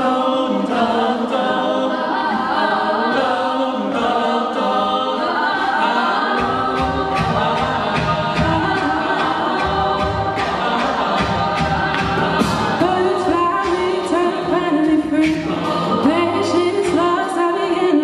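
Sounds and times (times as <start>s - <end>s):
backing vocal harmonies: 0.0s - 18.0s
steady vocal beat: 0.0s - 18.0s
woman singing lead: 5.1s - 18.0s.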